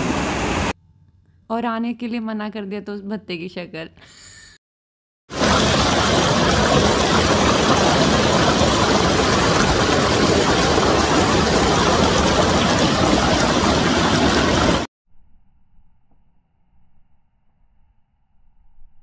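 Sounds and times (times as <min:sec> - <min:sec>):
water splashing: 0:05.3 - 0:14.9.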